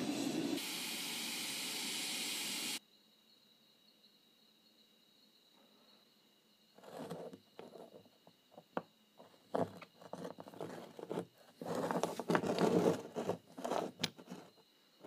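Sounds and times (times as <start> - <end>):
metal ingots scraping on wood: 6.8 - 8.0, 9.2 - 14.6.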